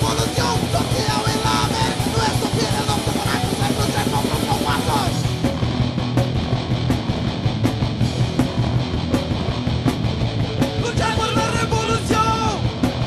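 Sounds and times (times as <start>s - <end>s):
punk band playing: 0.0s - 13.0s
shouted vocals: 10.8s - 12.6s.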